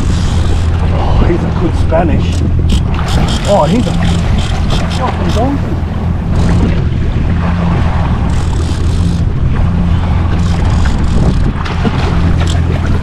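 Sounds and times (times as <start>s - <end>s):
jet ski engine idling: 0.0s - 13.0s
water splashing against hull: 0.0s - 13.0s
wind buffeting microphone: 0.0s - 13.0s.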